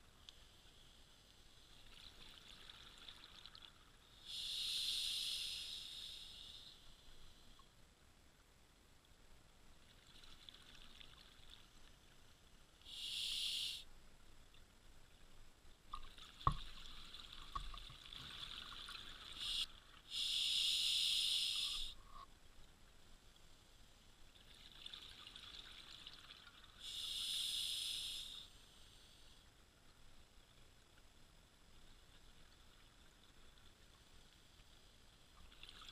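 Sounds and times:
diver breathing through regulator: 4.3 - 6.8, 12.9 - 13.8, 19.4 - 22.1, 26.8 - 29.3.

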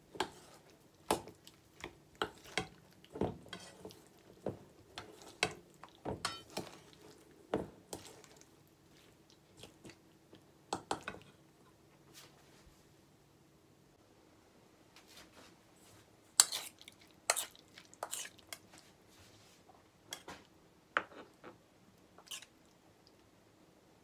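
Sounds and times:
wooden spatula scraping metal bowl: 2.2 - 7.0.

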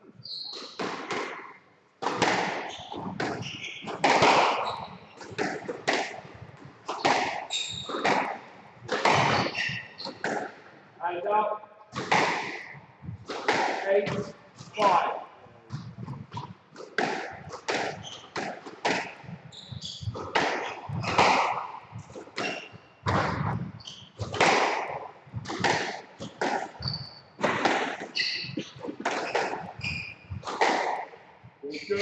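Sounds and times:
shoes squeaking on wooden floor: 0.0 - 10.6, 15.7 - 32.0
squash ball hits: 0.5 - 10.7, 11.9 - 15.1, 15.7 - 31.2.

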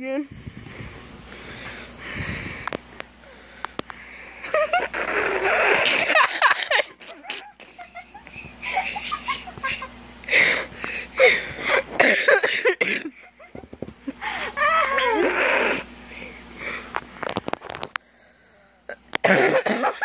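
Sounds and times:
person laughing breathily: 4.1 - 15.2.

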